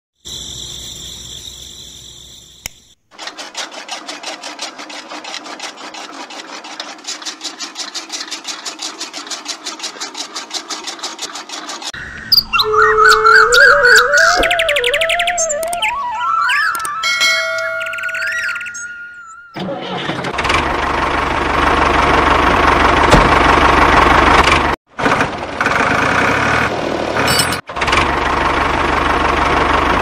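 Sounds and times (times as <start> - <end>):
cutter wheel rapid clicking: 2.6 - 12.0.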